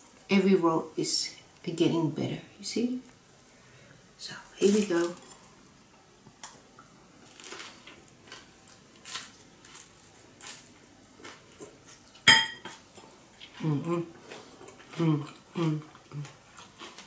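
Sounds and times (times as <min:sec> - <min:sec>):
glass bowl clinking on plate: 0:12.3 - 0:12.7.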